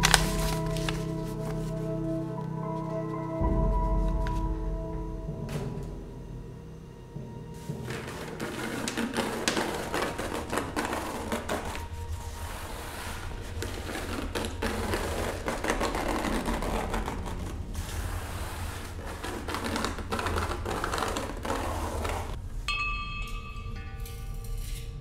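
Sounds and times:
low steady hum: 0:00.0 - 0:25.0
rapid irregular clicking: 0:07.6 - 0:22.4.

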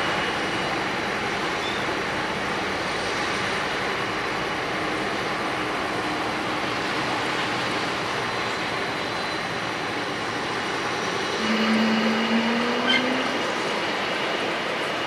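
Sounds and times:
jet engines rushing: 0:00.0 - 0:15.0.

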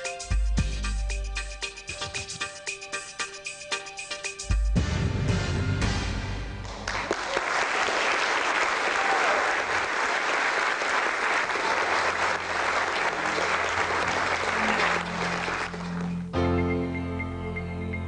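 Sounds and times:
music: 0:00.0 - 0:07.1, 0:12.2 - 0:18.0
audience applauding: 0:06.6 - 0:16.4.

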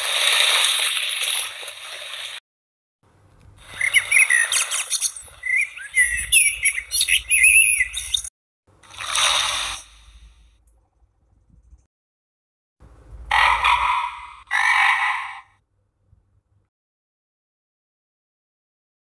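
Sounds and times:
recorded baby bird chirping: 0:03.6 - 0:08.3.

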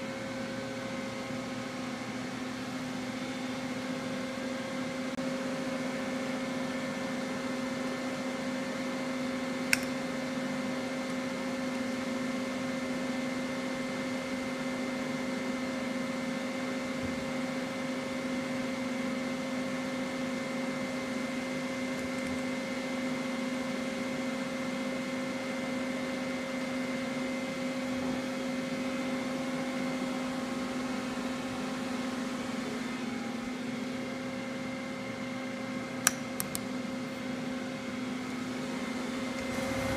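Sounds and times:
lathe machine hum with whine: 0:00.0 - 0:39.9
sharp click: 0:36.0 - 0:36.6.

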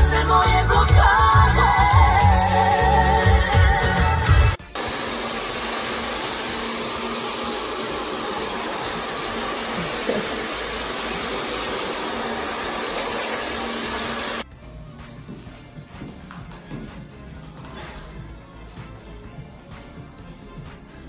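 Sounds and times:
hair dryer blowing: 0:04.3 - 0:14.4.

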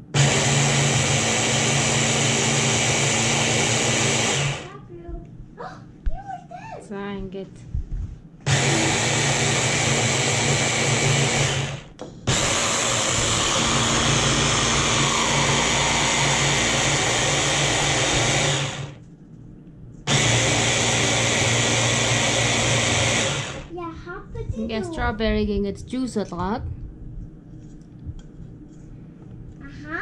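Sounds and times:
stick blender motor pureeing: 0:00.0 - 0:04.7, 0:08.4 - 0:19.0, 0:20.1 - 0:23.7.

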